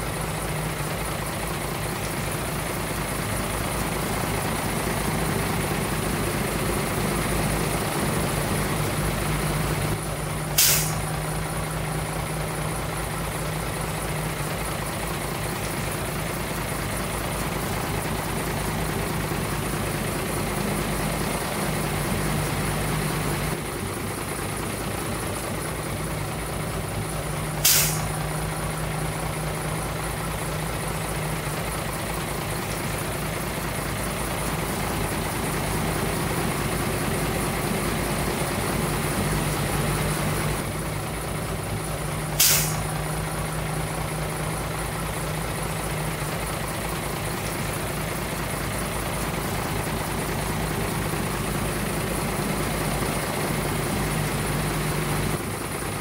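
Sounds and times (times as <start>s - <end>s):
diesel truck engine running: 0.0s - 56.0s
air brake hisses: 10.4s - 11.2s, 27.5s - 28.2s, 42.3s - 43.0s.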